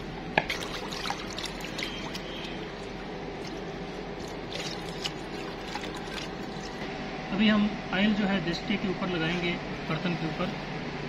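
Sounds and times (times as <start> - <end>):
water trickling and splashing: 0.4 - 6.8.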